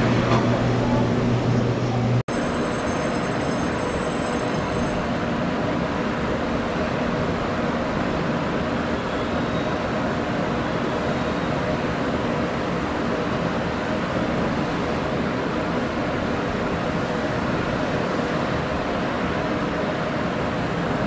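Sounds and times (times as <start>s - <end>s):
electric train hum: 0.0s - 21.0s.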